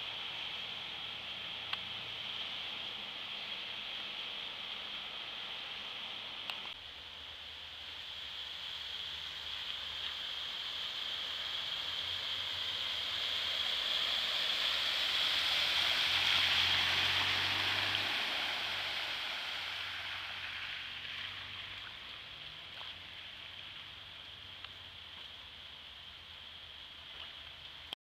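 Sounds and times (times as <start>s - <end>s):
low engine hum: 0.0s - 28.0s
tyres splashing through water: 9.1s - 28.0s.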